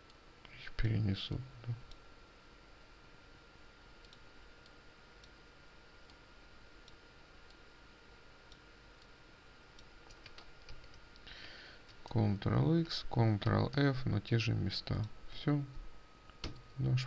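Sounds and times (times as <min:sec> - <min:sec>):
low room hiss: 0:00.0 - 0:17.0
computer mouse and keyboard clicks: 0:10.0 - 0:11.0.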